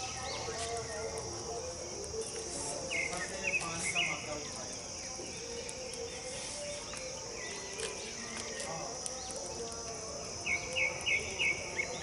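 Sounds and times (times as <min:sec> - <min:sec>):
high insect chirring: 0:00.0 - 0:12.0
wood fire crackling: 0:00.0 - 0:12.0.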